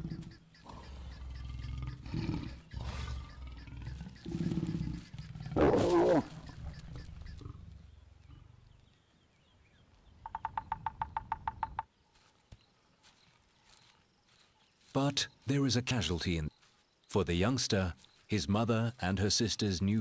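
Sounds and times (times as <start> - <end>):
woodpecker drumming on wood: 0.0 - 7.6, 10.2 - 11.9
lion snarling: 0.0 - 8.6
lions growling: 0.0 - 8.8.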